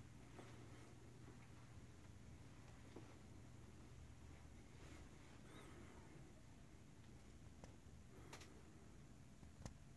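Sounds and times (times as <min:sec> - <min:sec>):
soft clicks: 0:09.4 - 0:09.8.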